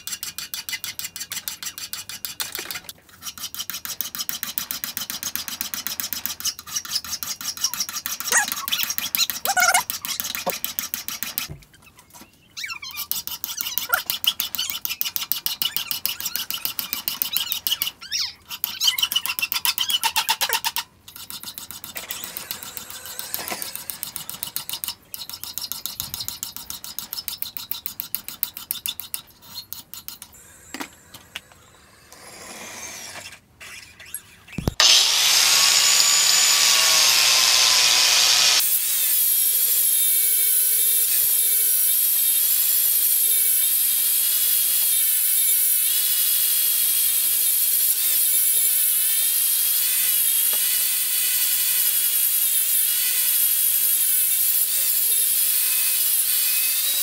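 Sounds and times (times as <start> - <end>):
hand file rasping on steel: 13.0 - 30.4
angle grinder running: 34.6 - 57.0.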